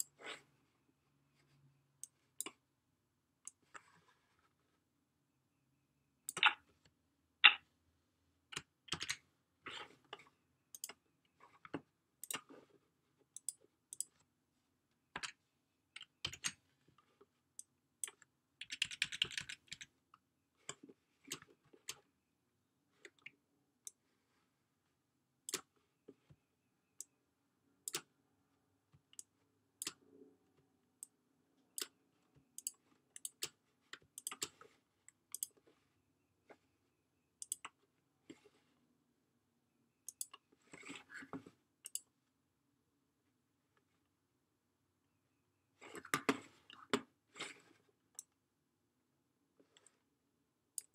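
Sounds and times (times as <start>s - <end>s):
computer mouse clicks: 3.4s - 4.0s, 6.3s - 7.6s, 10.7s - 11.0s, 12.2s - 12.5s, 13.4s - 14.3s, 27.8s - 28.1s, 29.1s - 30.0s, 31.0s - 32.0s, 32.6s - 34.6s, 35.3s - 35.6s, 37.4s - 38.4s, 40.1s - 41.2s, 41.8s - 42.1s.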